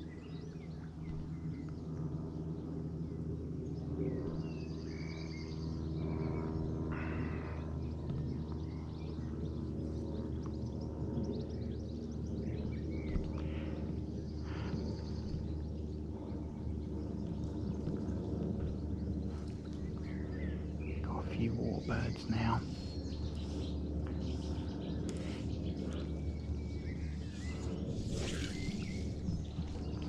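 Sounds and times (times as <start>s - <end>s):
steady low hum: 0.0s - 30.0s
bird chirps: 18.6s - 30.0s.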